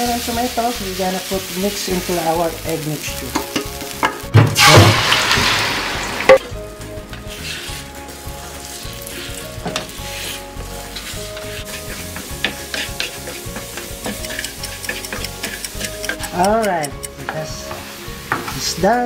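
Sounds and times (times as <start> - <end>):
loud sizzle in a pan: 0.0 - 19.0
spatula scraping a pan: 7.2 - 18.4.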